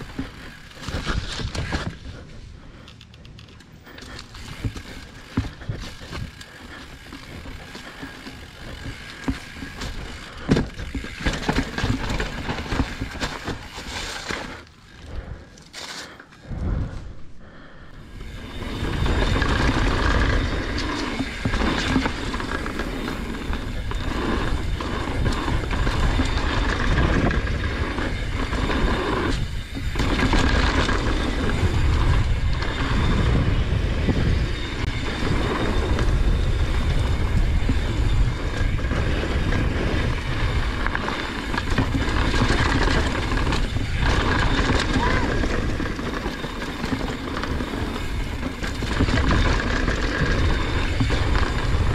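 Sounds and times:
bike knocks and rattles: 0:00.0 - 0:16.3, 0:18.1 - 0:51.9
tyre noise rumble: 0:18.0 - 0:51.9
wind on microphone: 0:18.2 - 0:51.9.

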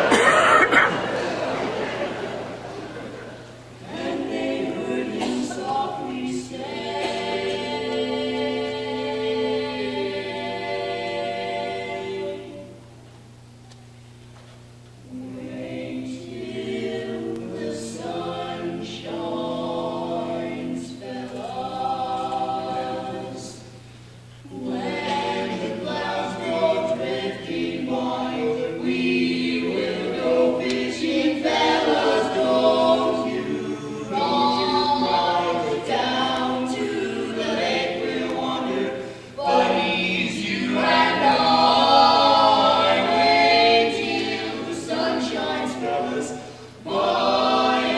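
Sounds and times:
barbershop quartet singing: 0:00.0 - 0:13.0, 0:15.0 - 0:47.9.

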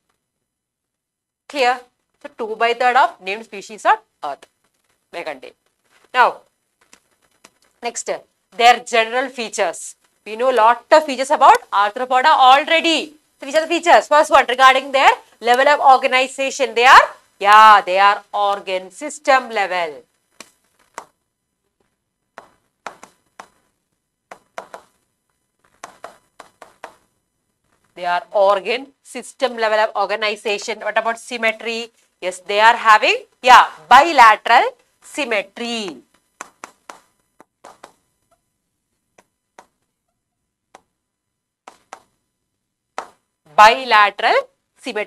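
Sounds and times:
pen tapping on touchscreen: 0:24.3 - 0:25.0, 0:25.8 - 0:27.0, 0:36.4 - 0:38.0.

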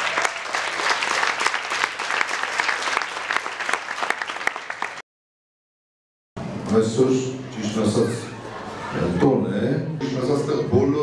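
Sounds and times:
audience applauding: 0:00.0 - 0:05.0.

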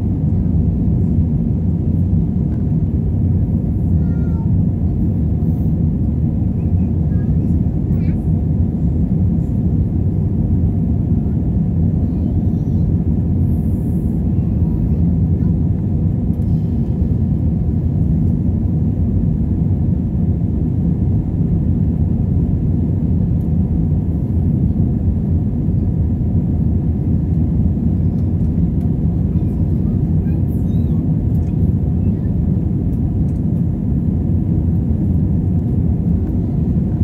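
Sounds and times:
airliner cabin engine rumble: 0:00.0 - 0:37.0.

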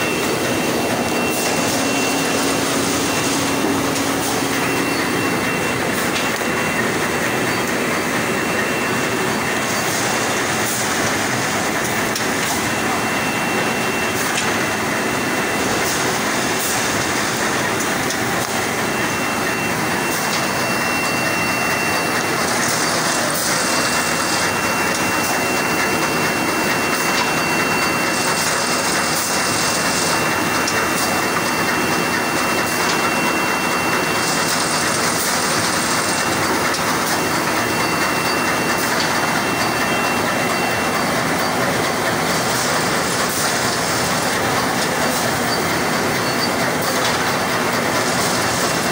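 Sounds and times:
machine mechanical clatter: 0:22.0 - 0:48.9.

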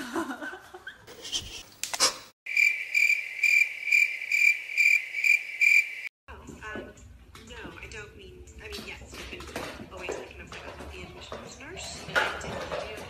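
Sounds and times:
cricket-like chirping: 0:02.5 - 0:06.1.

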